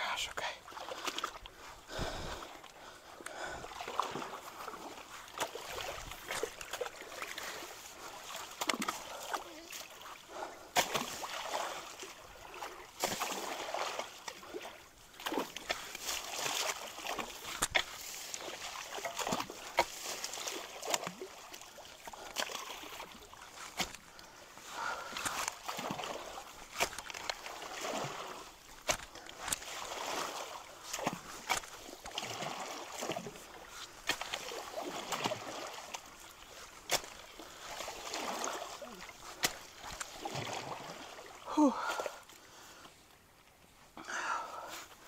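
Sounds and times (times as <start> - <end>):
creek water splashing: 0.4 - 45.0
sticks knocking and cracking: 26.8 - 27.4.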